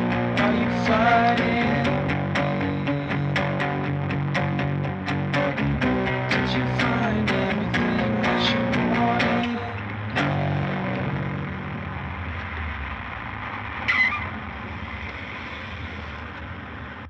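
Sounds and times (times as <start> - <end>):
electric guitar chord ringing: 0.0 - 14.8
short scratchy noise: 9.2 - 17.0.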